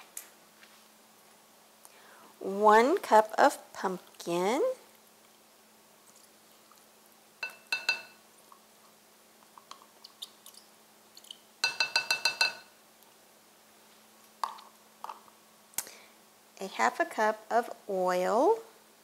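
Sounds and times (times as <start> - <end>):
utensil clinking against glass bowl: 7.4 - 8.2, 11.6 - 12.7.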